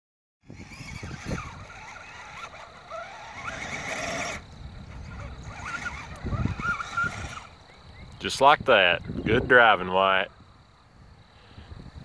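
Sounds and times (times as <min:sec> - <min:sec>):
electric motors whining: 0:00.4 - 0:08.1.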